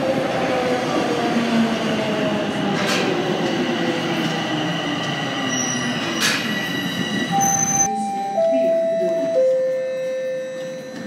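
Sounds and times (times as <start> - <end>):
train wheels rumbling: 0.0 - 7.9
subway train whine: 0.0 - 11.0.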